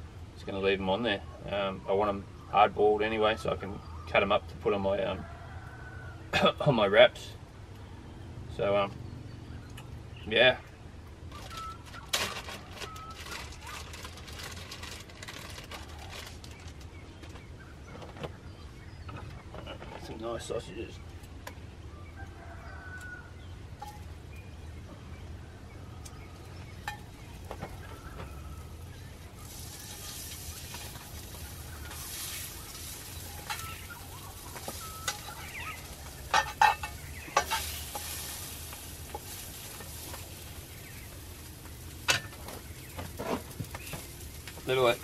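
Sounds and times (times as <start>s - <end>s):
sausages sizzling in a frying pan: 26.8s - 45.0s.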